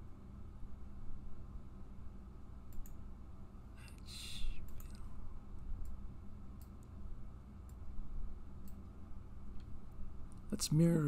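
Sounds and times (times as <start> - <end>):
computer mouse clicking: 2.7 - 3.0, 4.6 - 5.1, 6.6 - 7.0, 8.6 - 8.8.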